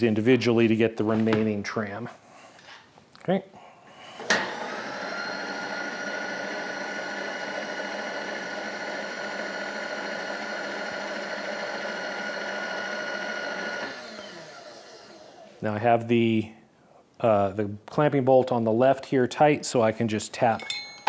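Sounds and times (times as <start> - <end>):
machine power feed whining: 4.2 - 15.6.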